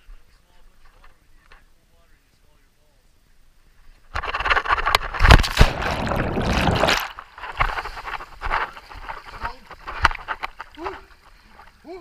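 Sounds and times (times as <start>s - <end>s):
heavy water slaps: 5.2s - 7.3s
water rushing and splashing: 5.3s - 7.3s.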